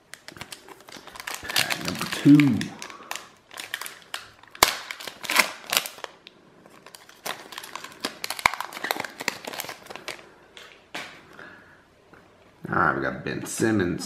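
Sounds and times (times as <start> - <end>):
foil wrapper crinkling and tearing: 0.0 - 10.3.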